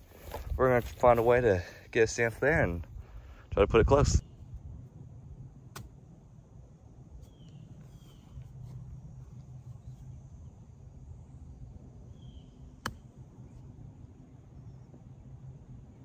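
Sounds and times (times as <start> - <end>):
faint low outdoor rumble: 0.0 - 16.0
bird chirps: 7.2 - 8.5, 12.1 - 12.8.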